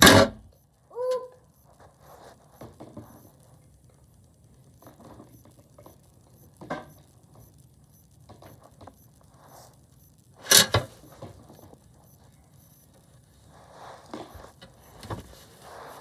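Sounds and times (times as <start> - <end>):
fidget toys rustling: 13.4 - 16.0.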